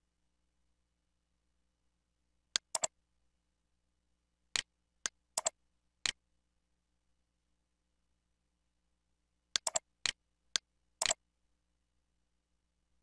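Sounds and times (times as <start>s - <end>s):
computer mouse button clicks: 2.6s - 2.9s, 4.6s - 6.2s, 9.6s - 10.2s.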